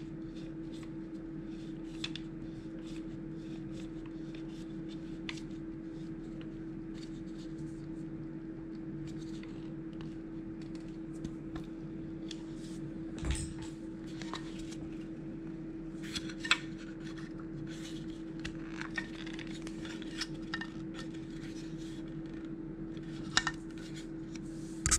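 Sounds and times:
faint steady hum: 0.0 - 24.9
hex keys and plastic clattering: 13.2 - 13.8.

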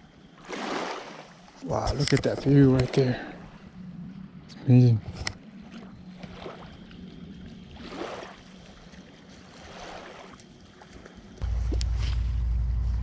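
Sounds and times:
small waves lapping: 0.0 - 4.5, 5.3 - 13.0
faint low hum: 11.4 - 13.0.

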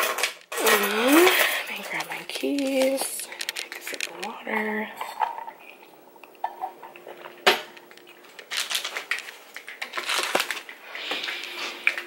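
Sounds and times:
small hard objects clinking: 0.0 - 4.3, 7.0 - 10.8.

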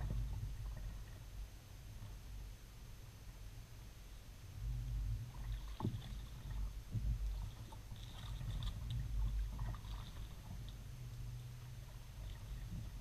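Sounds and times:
hull moving through water: 0.0 - 2.6, 4.6 - 13.0
paddle splashes and drips: 5.2 - 13.0.

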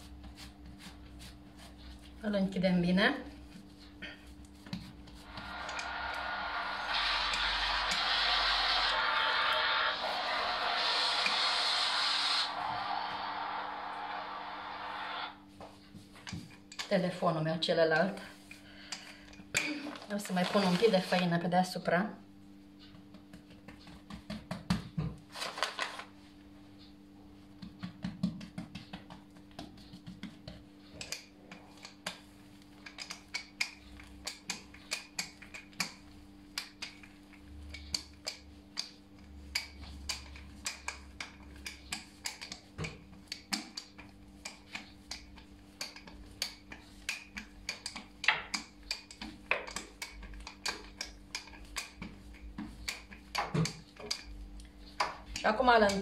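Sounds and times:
flour rustling: 19.8 - 21.3
rolling pin clicking and tapping: 27.6 - 56.0.

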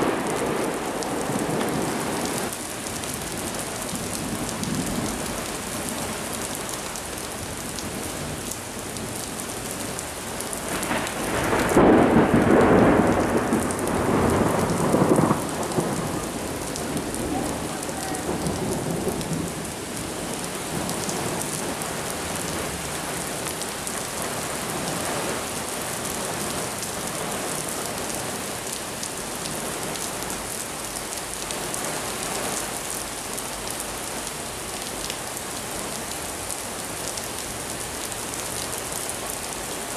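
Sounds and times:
thunder rumbling: 0.0 - 2.5, 10.7 - 21.8
heavy rain falling: 0.0 - 39.9.

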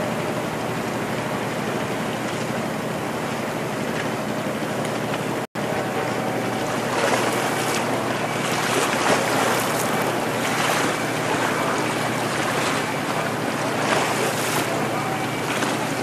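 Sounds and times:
waves washing against rocks: 6.4 - 16.0.

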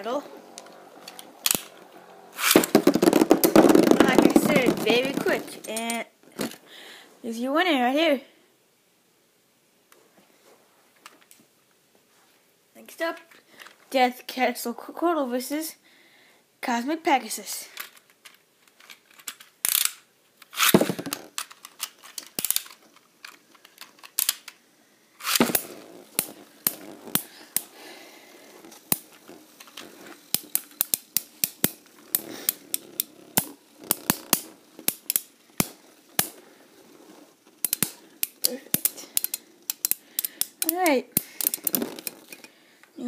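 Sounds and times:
tops colliding and scraping: 0.1 - 6.6, 20.5 - 22.8, 25.2 - 42.5
spinning tops clattering: 0.7 - 6.0.

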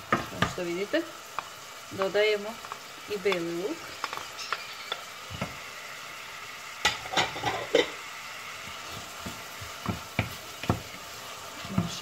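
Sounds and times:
onion and garlic sizzling in oil: 0.0 - 12.0
wooden spoon knocking on pot: 0.1 - 0.6, 8.8 - 11.0, 11.7 - 12.0.

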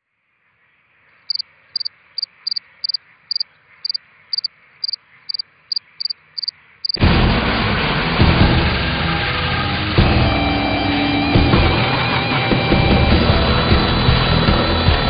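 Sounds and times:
cricket chirping: 0.4 - 7.0.

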